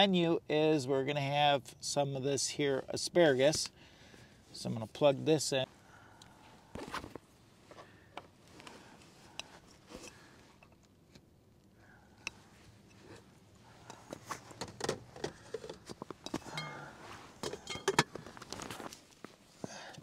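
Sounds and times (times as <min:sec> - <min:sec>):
cooking gear clinking: 0:13.8 - 0:18.4.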